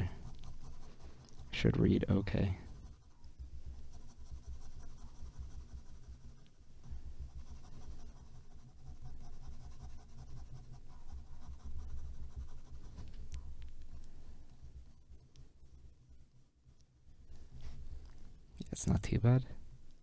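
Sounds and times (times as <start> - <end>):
pen scratching on paper: 0.0 - 13.0.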